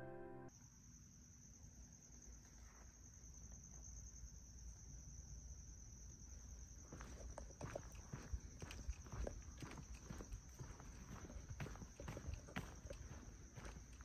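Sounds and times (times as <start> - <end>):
insect chirring: 0.5 - 14.0
footsteps on paved path: 6.8 - 14.0.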